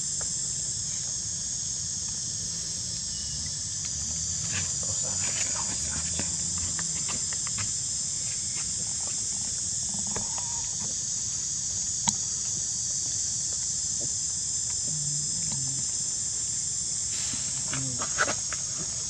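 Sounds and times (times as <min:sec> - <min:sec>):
insects chorus: 0:00.0 - 0:19.0.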